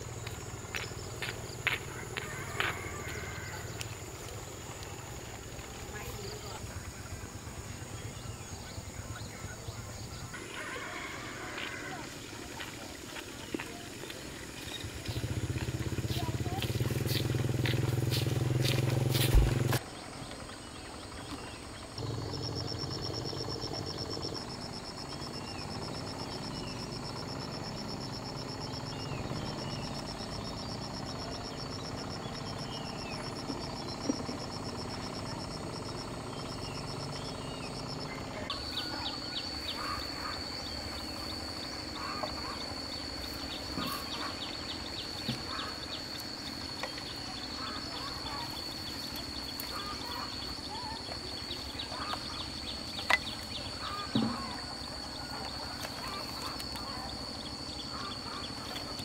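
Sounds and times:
low engine drone: 0.0 - 59.0.

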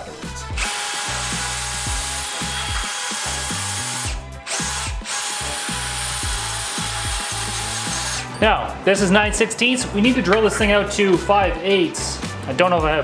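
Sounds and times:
background music with beat: 0.0 - 13.0
cordless drill boring metal: 0.6 - 8.4.

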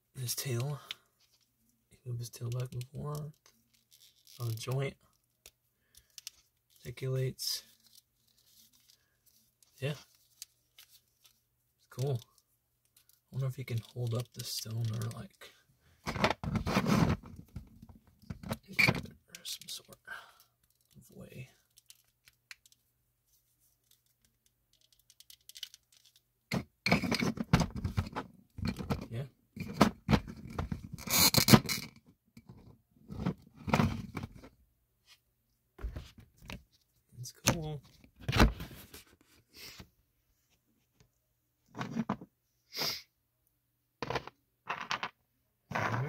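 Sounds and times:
breathy sniff-like hiss: 42.7 - 43.1.

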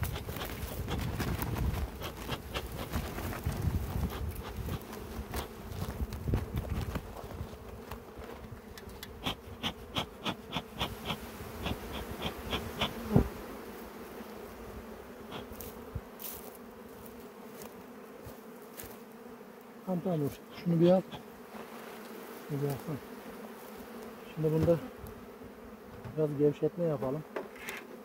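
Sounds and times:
honeybees buzzing: 0.0 - 28.0.

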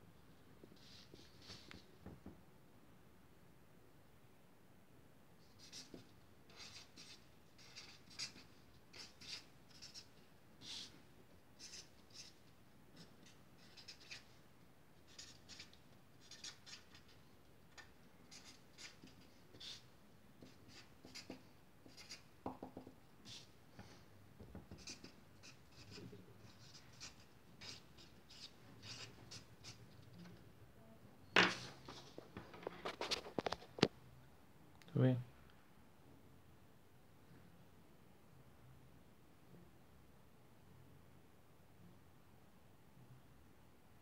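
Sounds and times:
marker pen scratching on paper: 5.5 - 14.4, 15.0 - 23.9, 24.7 - 30.2
marker squeak: 13.2 - 14.3, 15.1 - 17.1, 24.8 - 29.8.

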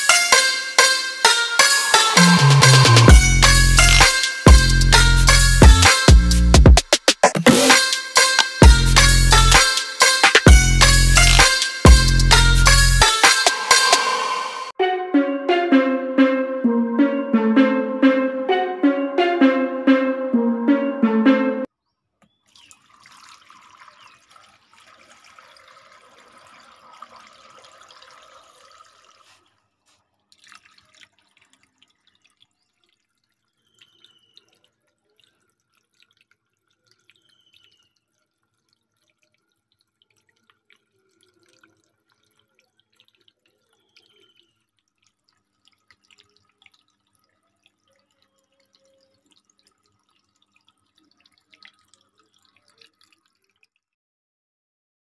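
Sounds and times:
water drips: 22.2 - 54.0
fountain water splashing on pebbles: 22.5 - 29.4, 30.2 - 53.9.

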